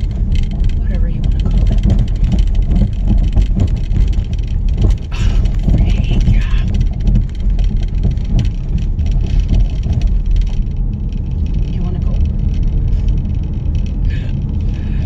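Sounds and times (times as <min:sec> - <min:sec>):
engine and tyres rumbling: 0:00.0 - 0:15.0.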